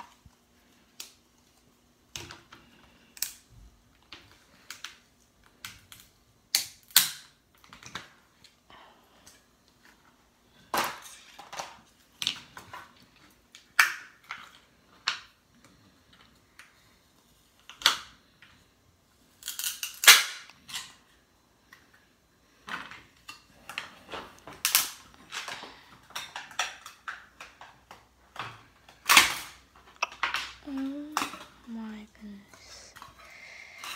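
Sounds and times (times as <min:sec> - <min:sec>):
plastic clicks and snaps: 0:00.9 - 0:08.6.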